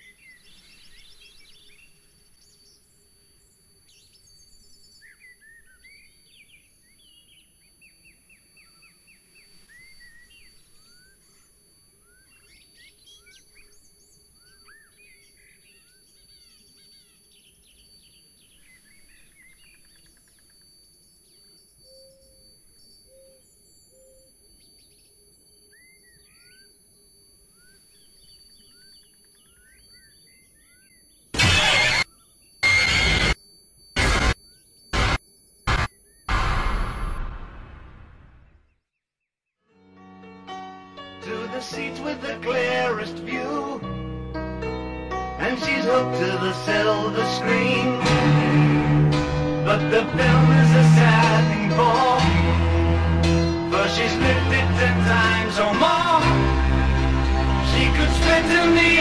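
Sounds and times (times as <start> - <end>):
small birds chirping: 0.0 - 31.4
outdoor background noise: 0.0 - 38.7.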